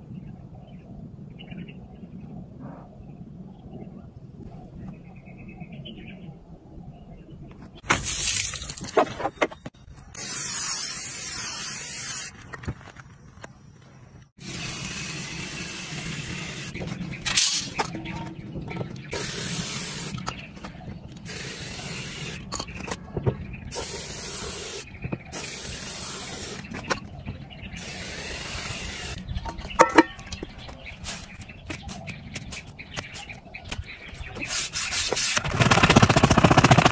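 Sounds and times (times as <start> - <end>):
spray paint can hissing: 10.1 - 12.4, 14.4 - 17.8, 19.1 - 20.3, 21.2 - 22.5, 23.7 - 26.7, 27.8 - 29.2, 34.4 - 35.5.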